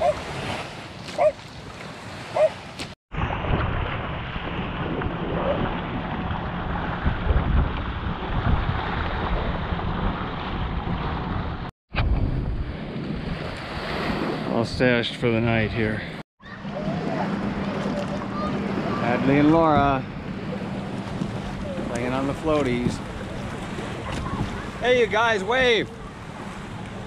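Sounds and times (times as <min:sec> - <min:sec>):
moving water: 0:00.0 - 0:27.0
wind rumbling on microphone: 0:03.1 - 0:14.8, 0:16.5 - 0:24.8.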